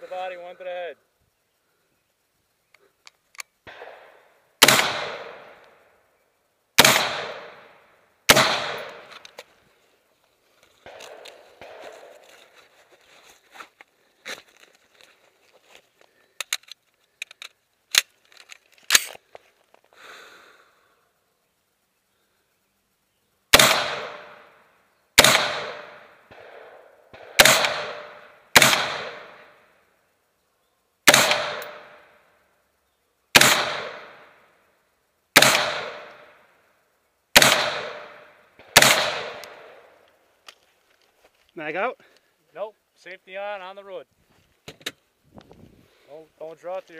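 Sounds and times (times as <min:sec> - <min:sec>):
rifle shots: 0:03.7 - 0:05.6, 0:06.8 - 0:07.7, 0:08.3 - 0:09.2, 0:23.5 - 0:24.5, 0:25.2 - 0:29.6, 0:31.1 - 0:32.0, 0:33.3 - 0:34.3, 0:35.4 - 0:36.3, 0:37.3 - 0:39.9.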